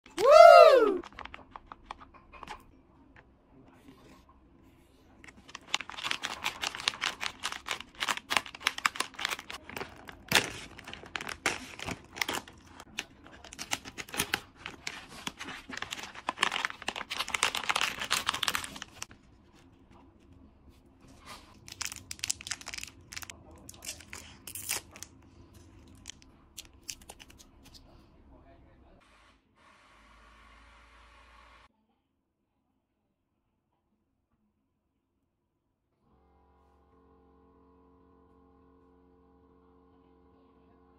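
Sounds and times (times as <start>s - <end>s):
plastic pouch tearing and crinkling: 5.3s - 19.1s, 21.5s - 25.2s, 25.9s - 27.8s
candy wrappers crinkling: 5.3s - 19.2s, 21.3s - 27.8s.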